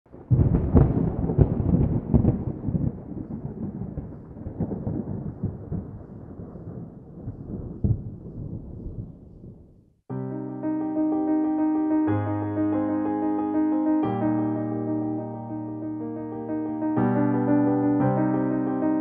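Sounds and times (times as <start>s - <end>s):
thunder clap and rumble: 0.1s - 9.8s.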